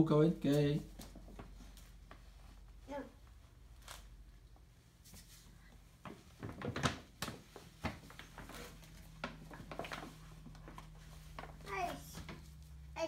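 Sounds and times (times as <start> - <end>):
paper bag rustling: 6.3 - 12.7.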